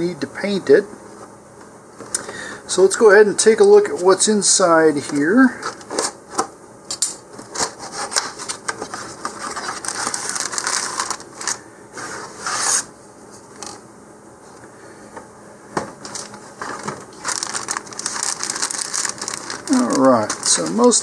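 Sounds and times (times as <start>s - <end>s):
cardboard rubbing and scraping: 12.0s - 12.9s.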